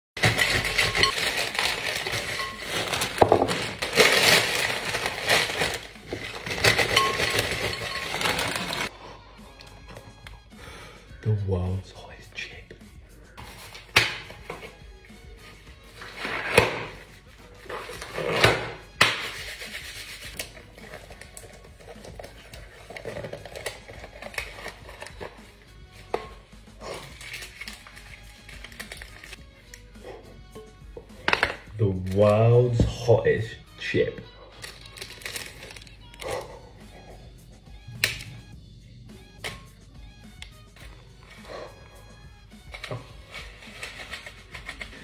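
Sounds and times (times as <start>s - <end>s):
chips rattling into glass bowl: 0.2s - 8.9s
plastic bag crackling: 0.2s - 8.9s, 34.6s - 36.2s
rubber gloves rubbing cardboard box: 19.2s - 21.2s.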